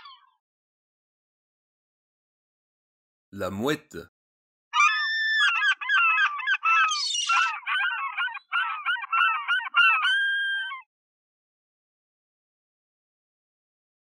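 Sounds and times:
gulls squawking: 4.8s - 10.9s.

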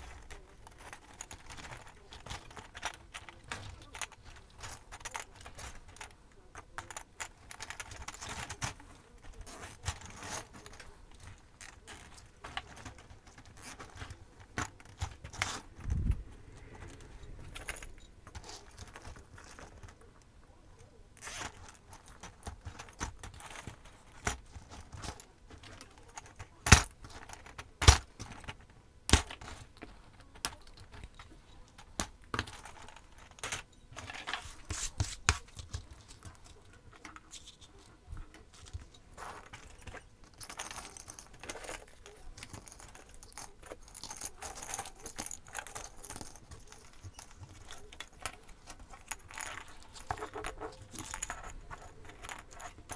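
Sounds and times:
ornaments clicking and rattling: 0.0s - 20.3s, 35.4s - 52.9s.

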